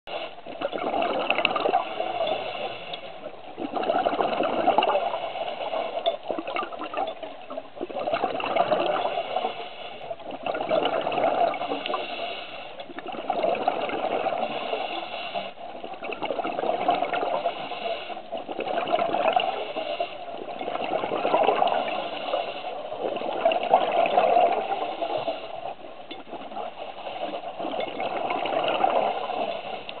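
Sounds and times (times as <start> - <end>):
exhaled bubbles gushing: 0.4 - 2.4, 3.2 - 9.5, 10.1 - 12.2, 12.8 - 30.0
scuba regulator breathing: 1.7 - 3.3, 4.8 - 6.0, 8.8 - 10.3, 11.4 - 12.9, 14.0 - 15.6, 17.0 - 18.4, 19.4 - 20.5, 21.5 - 23.3, 24.3 - 25.9, 26.6 - 27.7, 28.7 - 30.0.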